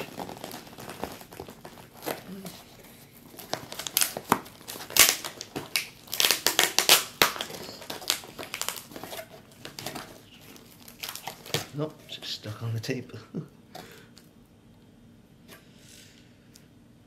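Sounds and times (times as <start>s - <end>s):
packing tape tearing: 0.0s - 11.9s
cardboard flaps crinkling: 0.0s - 12.4s.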